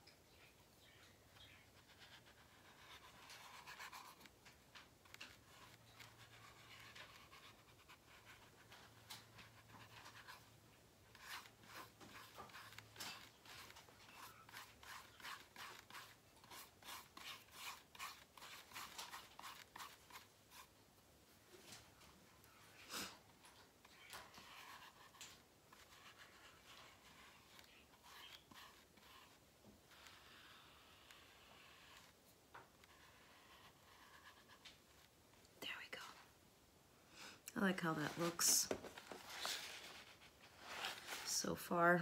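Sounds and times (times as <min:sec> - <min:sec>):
paintbrush rubbing on paper: 0:01.3 - 0:20.7, 0:23.8 - 0:32.2, 0:32.8 - 0:35.1, 0:37.6 - 0:42.0
brush tapping: 0:11.1 - 0:20.7.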